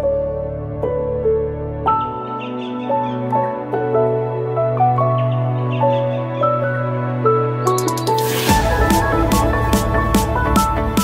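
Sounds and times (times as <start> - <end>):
electronic music with a beat: 7.6 - 11.0.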